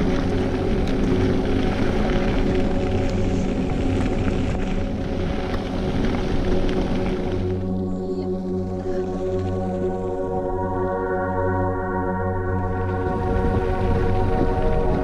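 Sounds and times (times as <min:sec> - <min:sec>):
background music with held tones: 0:00.0 - 0:15.0
bike tyre and wind rush: 0:00.0 - 0:15.0.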